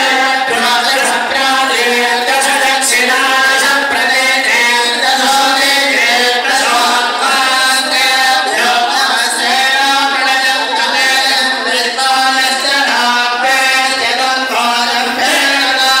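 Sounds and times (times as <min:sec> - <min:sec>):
voices chanting a mantra: 0:00.0 - 0:16.0.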